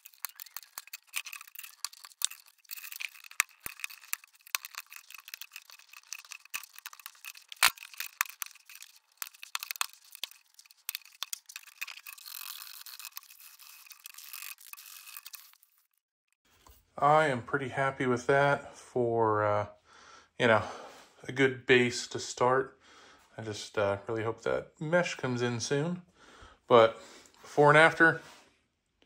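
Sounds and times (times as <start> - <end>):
tools scraping hard plastic: 0.0 - 15.7
small clicks: 0.0 - 15.9.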